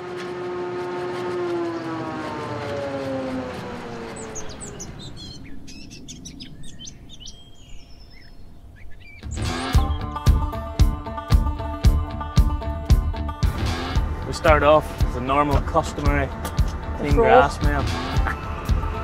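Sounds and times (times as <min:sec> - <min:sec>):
logo drone falling in pitch: 0:00.0 - 0:06.3
birds chirping: 0:01.0 - 0:10.7.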